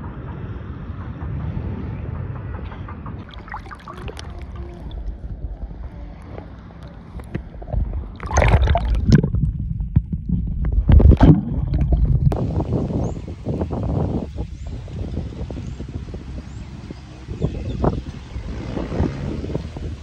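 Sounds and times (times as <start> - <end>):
outdoor background: 0.0 - 20.0
loud splashing surges: 3.2 - 5.1, 8.1 - 9.4
sea water sloshing and gurgling: 3.2 - 12.4.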